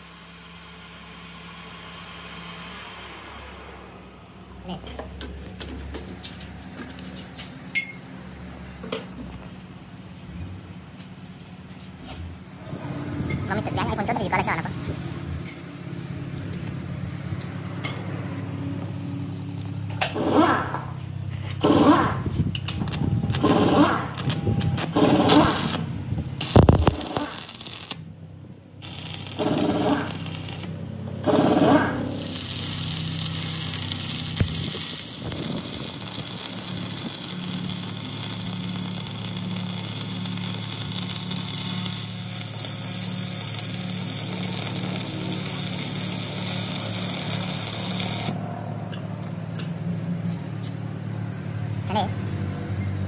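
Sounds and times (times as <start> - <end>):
welding transformer hum: 19.5 - 49.5
welding arc crackle and hiss: 22.8 - 25.8, 26.4 - 28.1, 28.8 - 30.8, 32.1 - 48.4.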